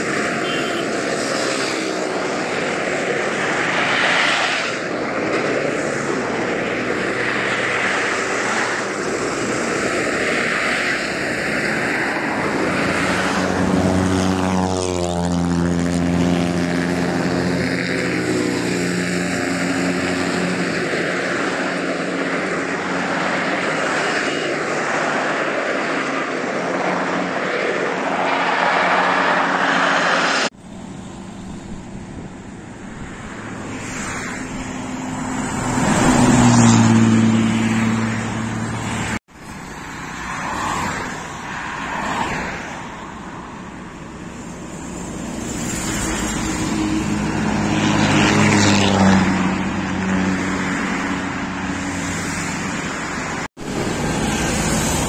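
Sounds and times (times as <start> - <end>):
buses driving past: 0.0 - 55.0
diesel bus engine running: 30.5 - 33.8.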